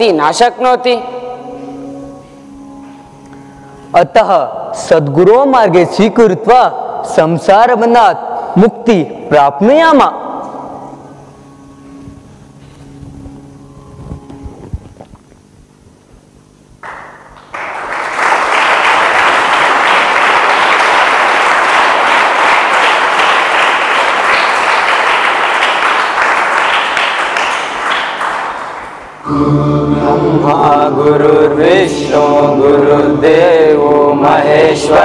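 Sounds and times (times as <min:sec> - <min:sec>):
audience applause: 0:16.8 - 0:29.2.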